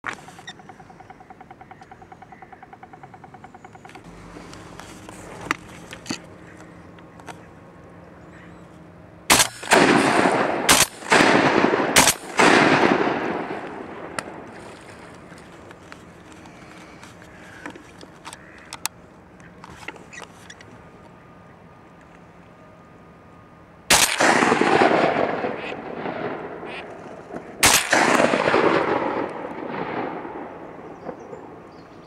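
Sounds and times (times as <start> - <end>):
shotgun shots echoing: 9.3 - 14.5, 23.9 - 31.6.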